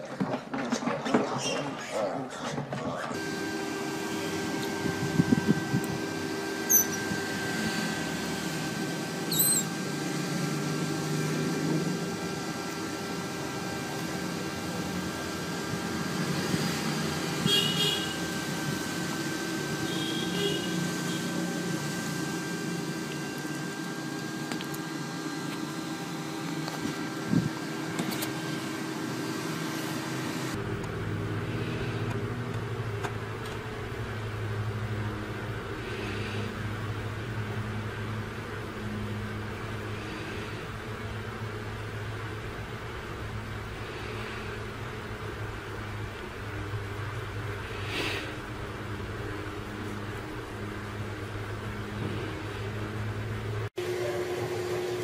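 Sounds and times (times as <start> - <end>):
steady low hum: 3.2 - 55.0
otter pup squeaking: 9.3 - 9.7.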